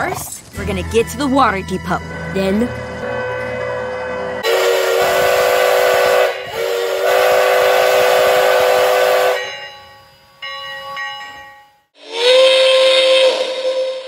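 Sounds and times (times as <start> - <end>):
steam locomotive chime whistle: 2.0 - 14.0
second steam whistle sliding up: 3.0 - 9.5, 12.0 - 14.0.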